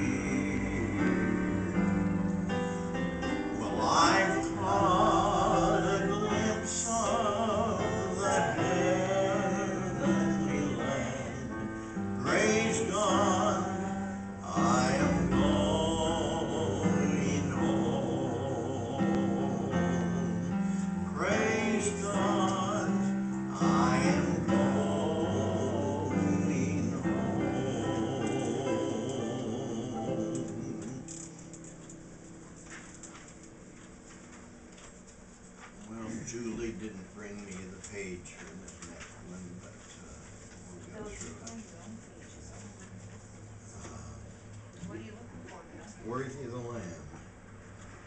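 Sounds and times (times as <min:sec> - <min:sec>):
man singing a hymn with vibrato: 0:00.0 - 0:01.8, 0:03.5 - 0:31.2
digital piano chords: 0:00.0 - 0:33.8.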